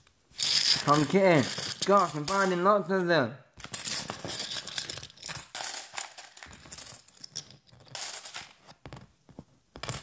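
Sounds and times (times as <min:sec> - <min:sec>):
coins clinking: 0:00.0 - 0:02.7, 0:03.6 - 0:08.6.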